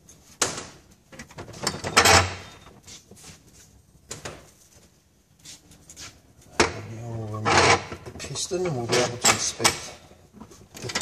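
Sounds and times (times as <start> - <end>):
metal clanks and scraping: 6.6 - 11.0.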